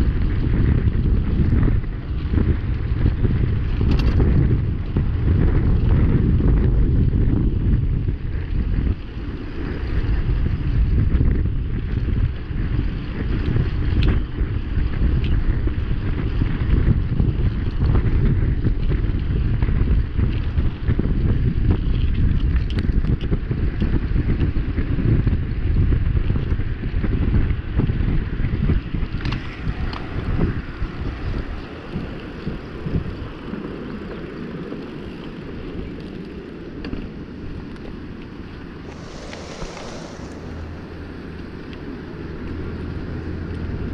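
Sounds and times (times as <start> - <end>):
bike clicks and rattles: 0.0 - 6.1, 7.6 - 30.5
wind buffeting microphone: 0.0 - 43.9.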